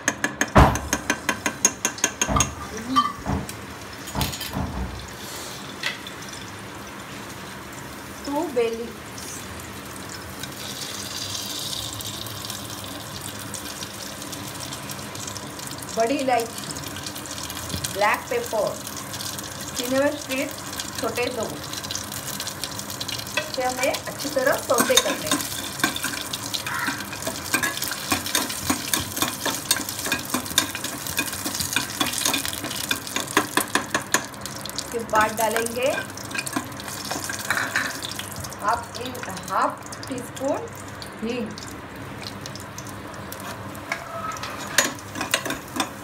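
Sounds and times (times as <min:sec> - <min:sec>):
spices sizzling in hot oil: 0:00.2 - 0:46.0
metal spoon scraping a pot: 0:43.4 - 0:45.9.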